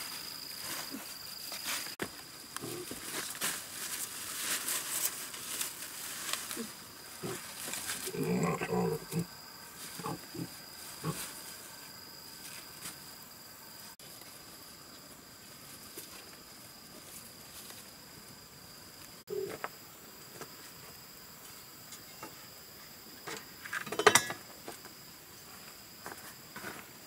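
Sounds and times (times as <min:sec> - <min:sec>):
large leaves rustling: 0:00.0 - 0:19.2
high insect drone: 0:00.0 - 0:27.0
piglet grunting: 0:07.2 - 0:09.3.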